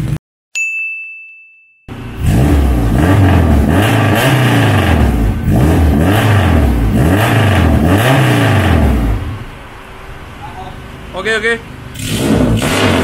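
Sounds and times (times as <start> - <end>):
car engine revving: 1.9 - 13.0.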